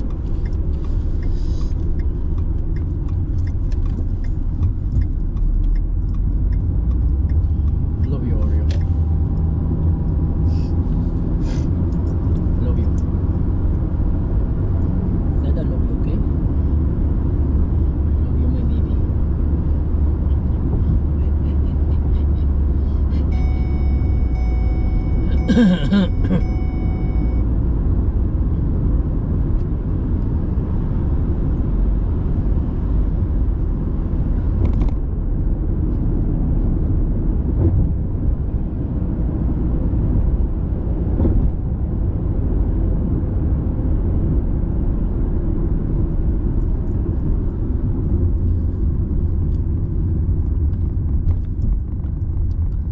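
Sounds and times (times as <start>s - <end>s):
car cabin road rumble: 0.0s - 52.9s
steady high tone: 23.2s - 27.4s.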